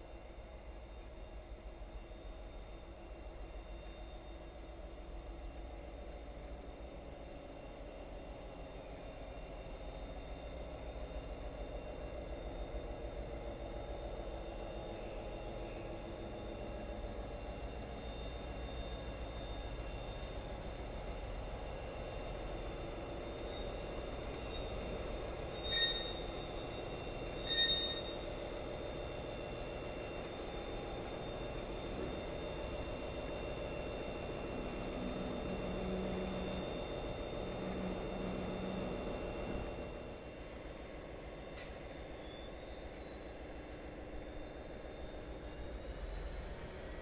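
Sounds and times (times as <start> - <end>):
train rumbling on track: 0.0 - 47.0
short high squeals: 25.6 - 26.4, 27.2 - 28.3.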